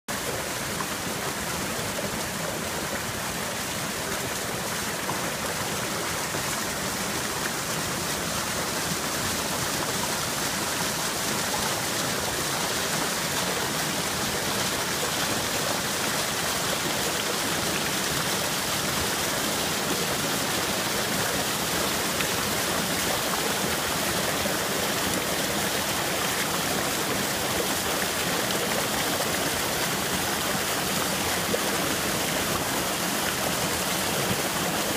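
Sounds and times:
creek rushing over boulders: 0.1s - 34.9s.

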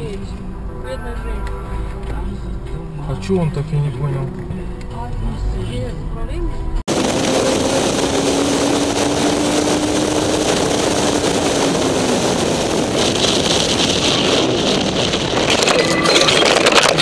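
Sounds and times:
motorcycle engine hum: 4.2s - 17.0s
wind rush: 6.8s - 17.0s.

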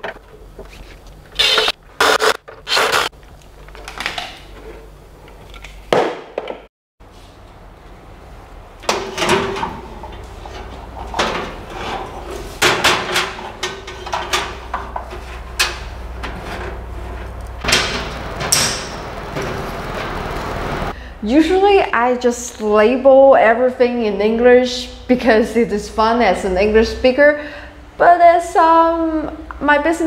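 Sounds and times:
metal panels knocking and scraping: 8.8s - 20.7s
steady low hum: 13.5s - 21.3s.

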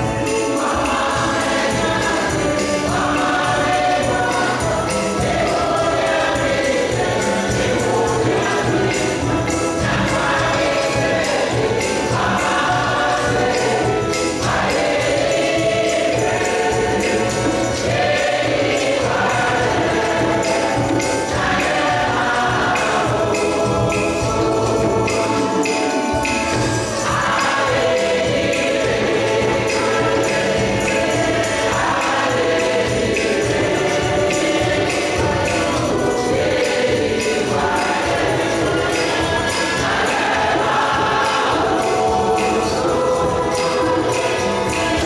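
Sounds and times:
choir singing gospel: 0.0s - 45.0s
steady percussive beat: 0.0s - 45.0s.

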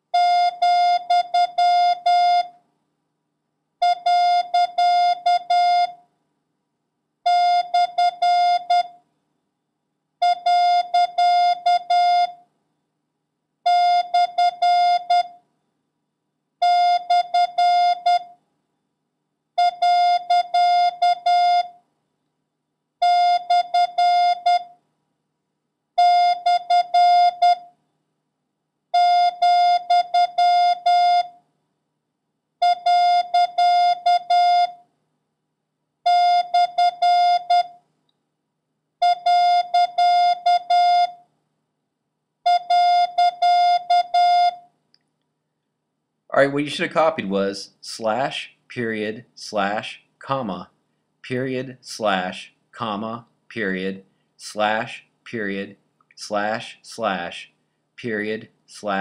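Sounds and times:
morse code beeps: 32.6s - 34.7s, 39.0s - 41.2s, 42.5s - 44.6s.

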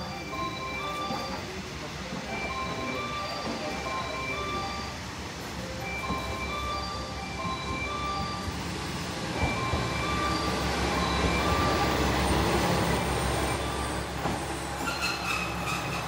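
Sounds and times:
train rumble: 0.0s - 16.0s
faint high squeal: 13.4s - 16.0s.

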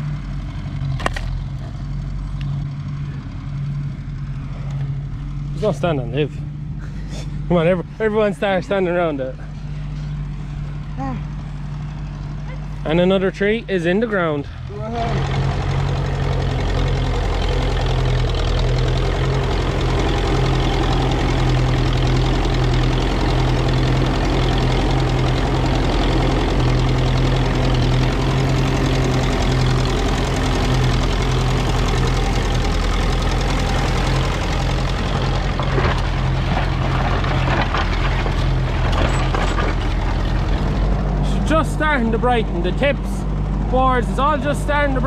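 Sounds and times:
tractor engine running: 0.0s - 45.0s
engine knocks: 14.1s - 45.0s.

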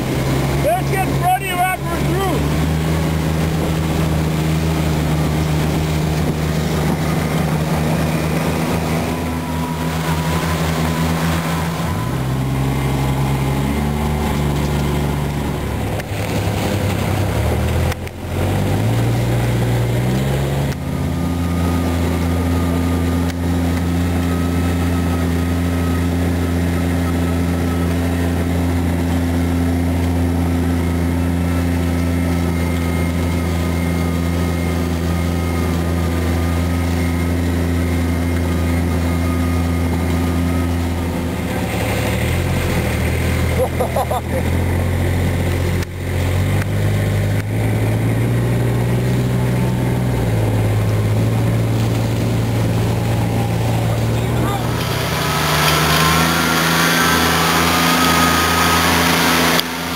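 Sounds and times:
engine revving up: 0.0s - 59.9s
utility vehicle engine running: 0.0s - 59.9s.

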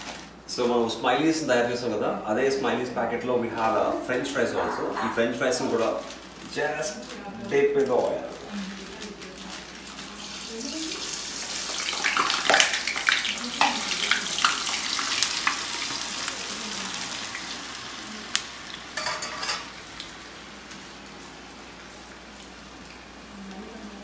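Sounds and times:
fries sizzling in hot oil: 9.8s - 24.0s.

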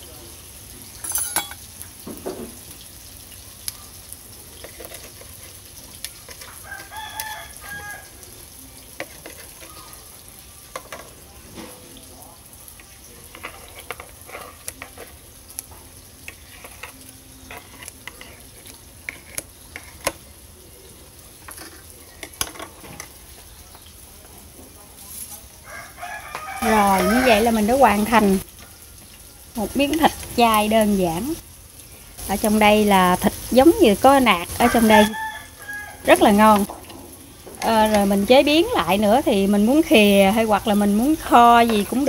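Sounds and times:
cutlery clinking on ceramic plate: 1.0s - 1.6s
rooster crowing: 6.4s - 8.4s, 25.5s - 29.8s, 34.5s - 36.7s.

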